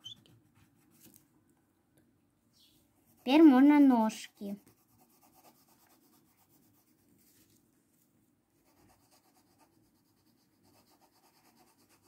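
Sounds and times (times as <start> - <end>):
pencil scratching on paper: 3.0 - 7.1, 8.6 - 12.0.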